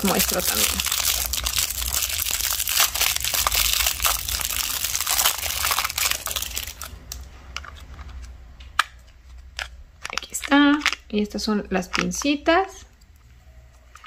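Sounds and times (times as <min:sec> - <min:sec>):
plastic wrap crinkling: 0:00.0 - 0:08.3.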